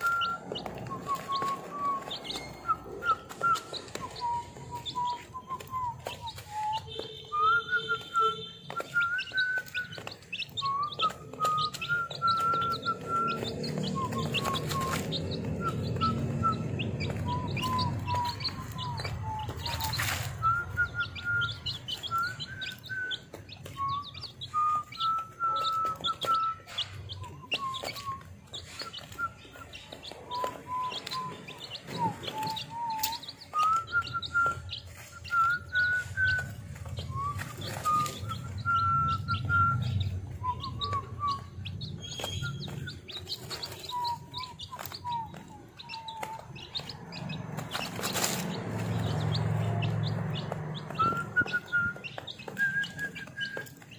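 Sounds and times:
whistle-like tone: 0:00.0 - 0:46.8, 0:50.9 - 0:53.9
chicks peeping: 0:00.0 - 0:53.9.

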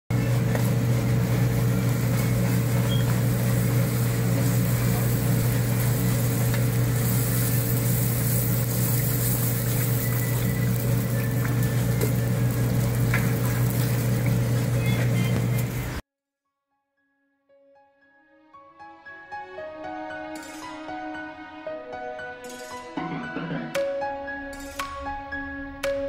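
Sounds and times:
oil sizzling while deep-frying: 0:00.1 - 0:16.0.

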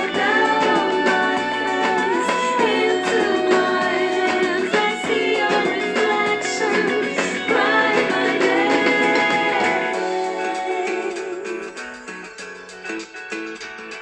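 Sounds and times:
song with singing voice: 0:00.0 - 0:12.6.

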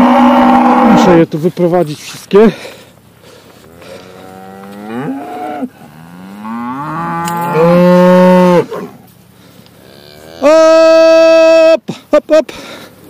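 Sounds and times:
cattle mooing: 0:00.0 - 0:01.2, 0:03.6 - 0:09.0, 0:09.8 - 0:11.5.

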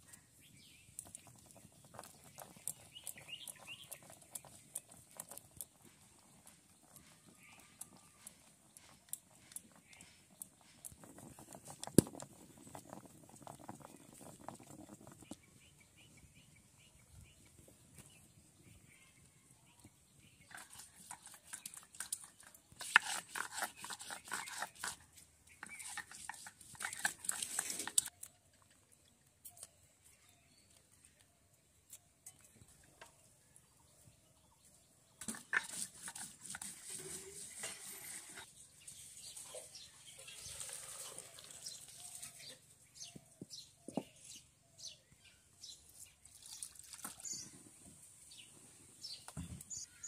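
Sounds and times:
stone scraping on wooden board: 0:22.7 - 0:25.0.

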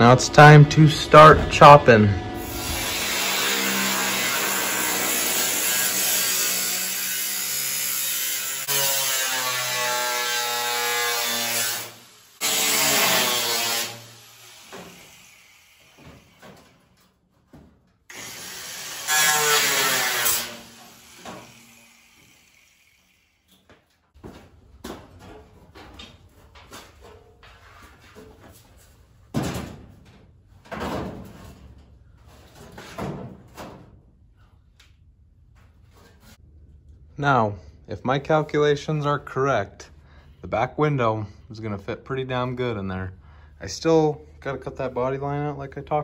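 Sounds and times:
angle grinder cutting steel: 0:01.2 - 0:16.4, 0:18.1 - 0:23.5.

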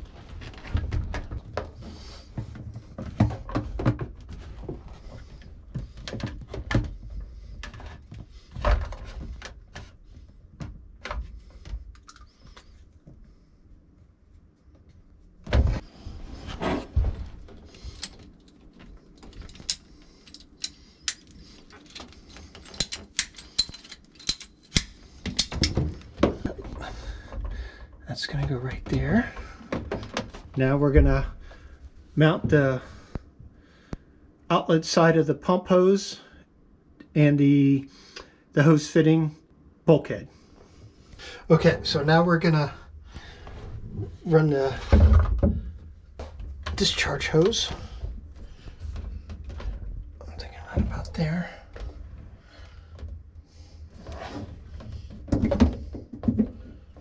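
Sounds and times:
hose rustling and knocking: 0:00.0 - 0:13.2.

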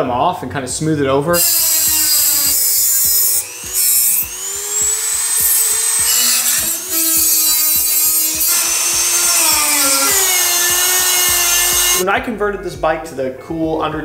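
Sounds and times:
rotary tool grinding steel: 0:01.4 - 0:12.0.

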